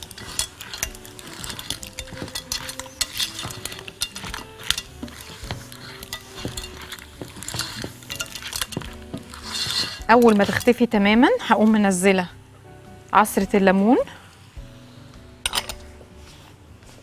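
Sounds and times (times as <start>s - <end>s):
spoon scraping a pot: 0.0s - 11.8s
food sizzling in a pot: 0.0s - 12.1s.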